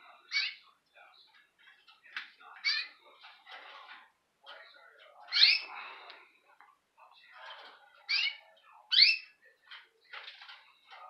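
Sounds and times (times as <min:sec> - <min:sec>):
canary calling: 0:00.3 - 0:00.6, 0:02.6 - 0:03.0, 0:05.2 - 0:05.7, 0:08.0 - 0:09.4.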